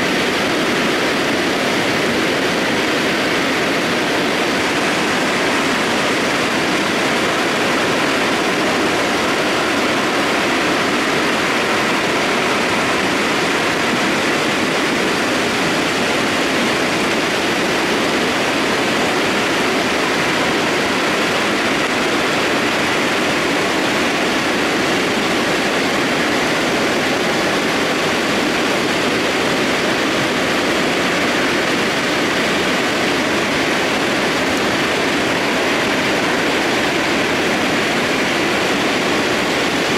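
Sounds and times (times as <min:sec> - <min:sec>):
mudflow rushing down valley: 0:00.0 - 0:39.9.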